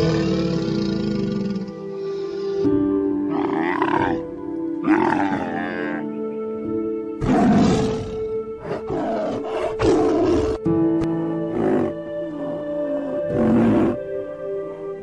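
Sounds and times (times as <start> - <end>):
tiger roaring: 0.0 - 1.8, 3.3 - 4.2, 4.8 - 6.1, 7.2 - 10.7, 11.5 - 14.1
background music: 0.0 - 15.0
camels calling: 3.3 - 6.1.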